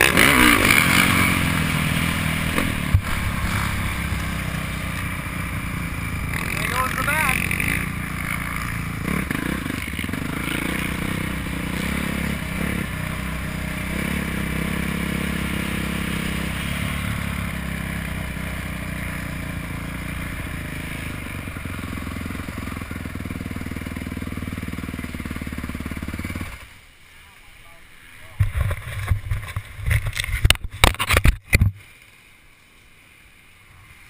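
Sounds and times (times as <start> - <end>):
dirt bike engine running: 0.0 - 26.7.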